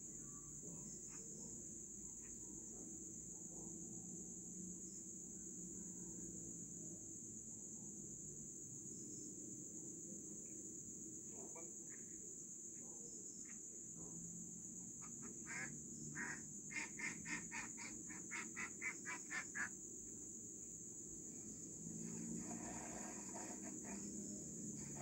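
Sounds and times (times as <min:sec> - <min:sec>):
steady high-pitched hiss: 0:00.0 - 0:25.0
animal croaking calls: 0:15.0 - 0:19.7.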